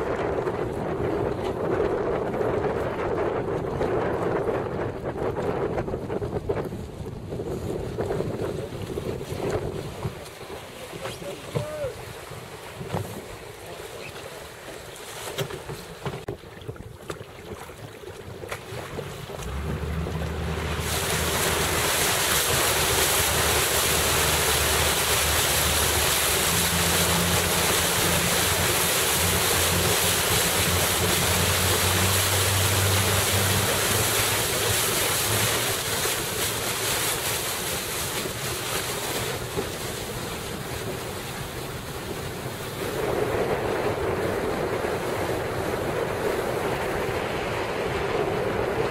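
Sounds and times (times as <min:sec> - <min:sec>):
water rushing past a boat: 0:00.0 - 0:48.9
wind on microphone: 0:00.0 - 0:48.9
low engine hum: 0:15.4 - 0:48.9.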